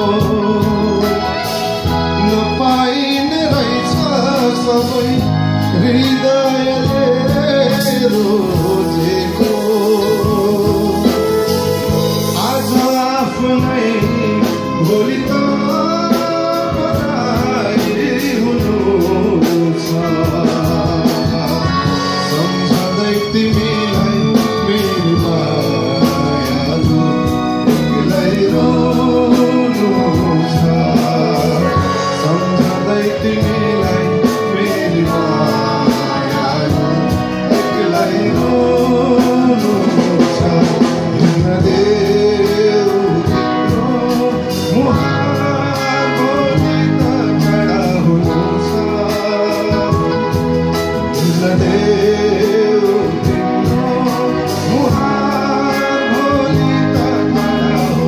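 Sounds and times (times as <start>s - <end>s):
bass guitar: 0.0s - 58.0s
electric guitar: 0.0s - 58.0s
man singing into microphone: 0.0s - 58.0s.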